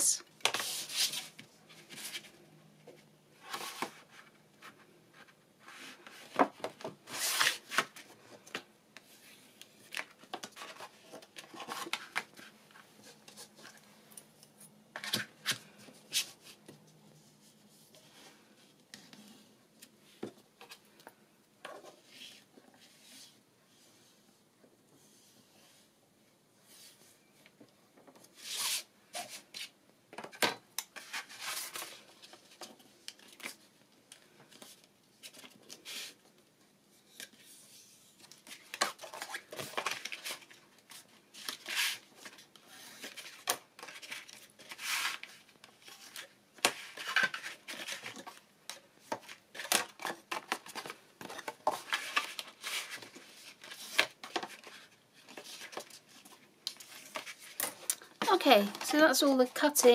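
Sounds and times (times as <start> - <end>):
card rustling and scraping: 3.4 - 13.9, 31.0 - 33.7, 37.2 - 48.4, 49.0 - 59.1.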